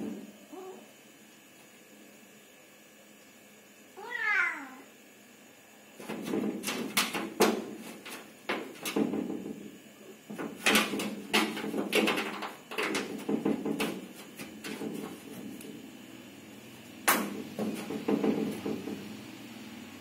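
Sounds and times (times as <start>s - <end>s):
metal sheeting rattling and knocking: 6.0s - 9.7s, 10.3s - 15.9s, 17.1s - 19.1s.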